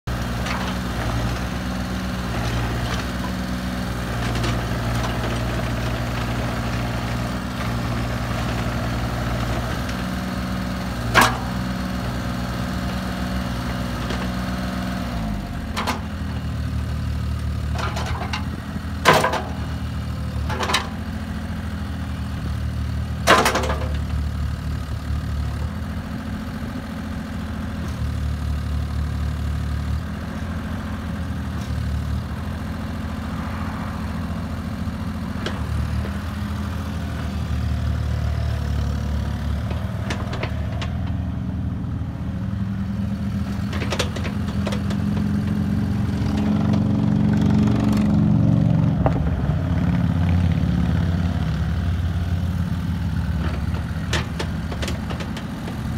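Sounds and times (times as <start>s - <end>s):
diesel engine running: 0.0s - 55.9s
excavator arm clanking: 23.2s - 24.1s, 39.7s - 41.2s, 43.6s - 46.9s, 53.2s - 55.9s.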